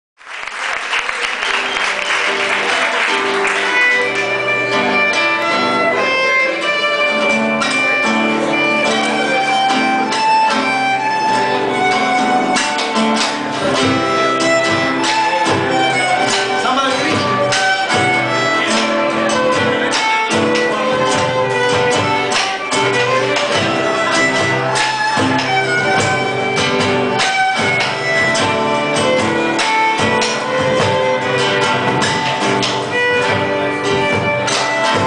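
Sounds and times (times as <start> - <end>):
applause: 0.2 - 4.9
percussion: 0.9 - 35.0
violin and acoustic guitars: 1.6 - 35.0.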